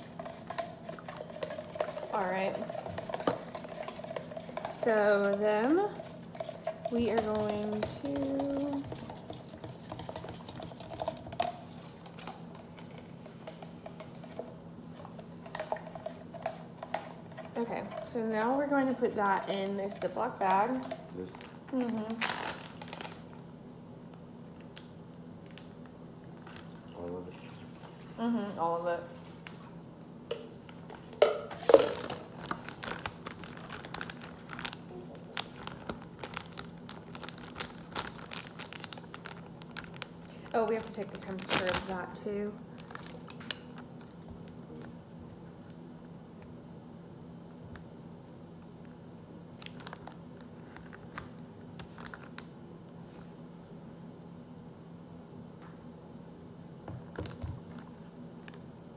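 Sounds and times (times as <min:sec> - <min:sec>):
plastic bag crinkling: 0:20.8 - 0:23.4, 0:31.5 - 0:44.2, 0:49.6 - 0:52.5.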